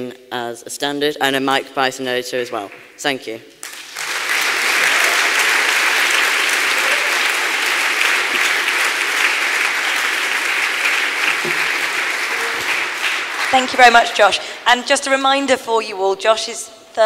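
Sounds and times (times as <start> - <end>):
audience applauding: 3.6 - 14.0.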